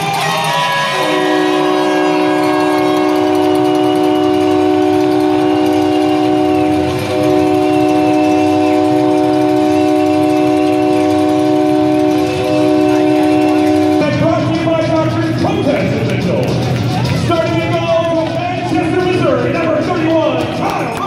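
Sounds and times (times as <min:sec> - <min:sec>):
held chord over sound system: 0:00.0 - 0:21.0.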